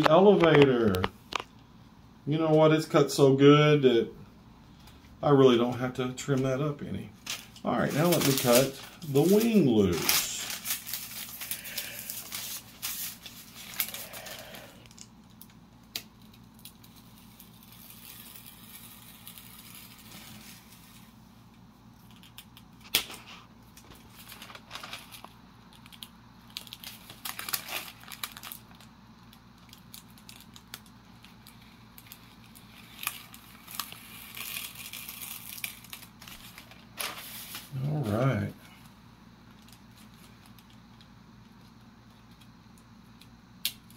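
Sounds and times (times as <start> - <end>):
steady low hum: 0.0 - 43.9
small clicks and snaps: 42.3 - 43.9.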